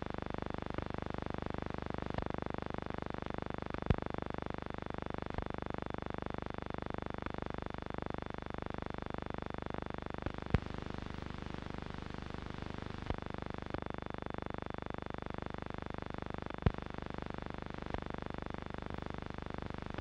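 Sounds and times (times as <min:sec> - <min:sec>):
sharp crackles and pops: 0:10.2 - 0:13.9, 0:16.5 - 0:18.2.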